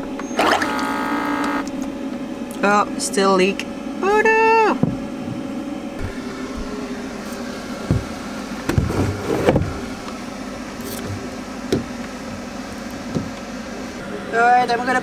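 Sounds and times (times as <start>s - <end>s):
steady low hum: 0.0s - 15.0s
plastic jug knocks and clunks: 4.8s - 5.4s, 7.8s - 9.8s, 11.1s - 12.0s.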